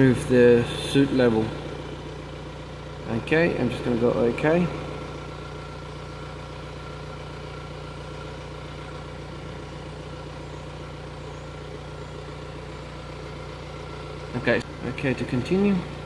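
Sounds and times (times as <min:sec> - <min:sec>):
diesel engine idling: 0:00.0 - 0:16.0.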